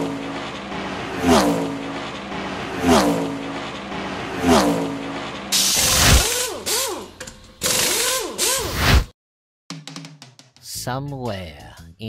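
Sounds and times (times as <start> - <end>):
race car zooming past: 0.0 - 5.6.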